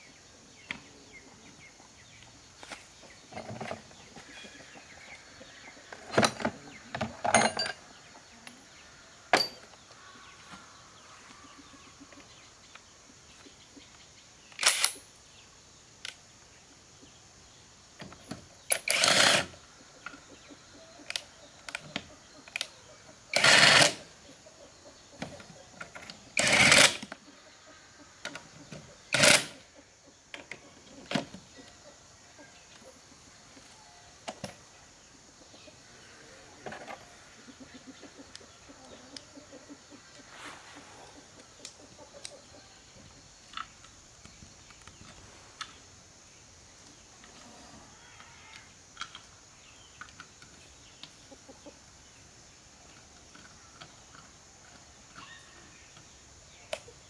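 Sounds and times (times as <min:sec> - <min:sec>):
impact wrench bursts: 0:18.7 - 0:19.5, 0:23.3 - 0:24.0, 0:26.4 - 0:27.1, 0:29.1 - 0:29.6.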